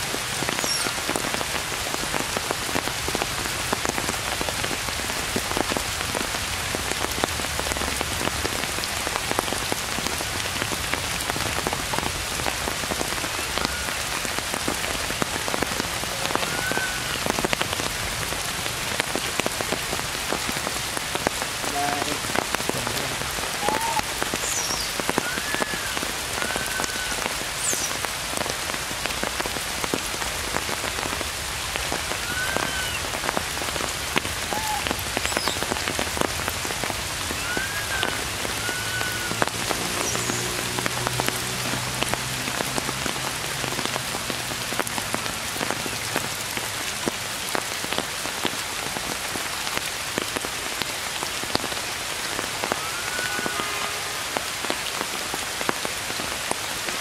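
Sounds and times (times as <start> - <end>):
steady rain: 0.0 - 57.0
faint chirping calls: 0.5 - 1.0.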